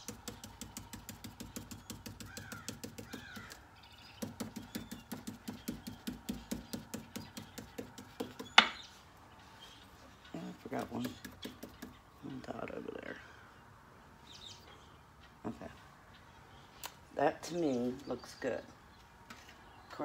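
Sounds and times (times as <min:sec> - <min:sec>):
brush tapping on stencil: 0:00.0 - 0:03.6, 0:04.2 - 0:08.8.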